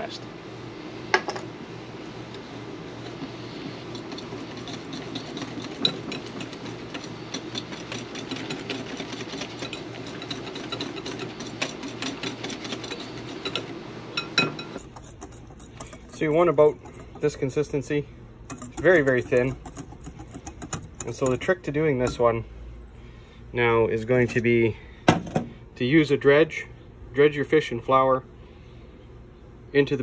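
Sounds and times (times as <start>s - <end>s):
batter sloshing: 2.1s - 13.8s, 14.8s - 22.4s.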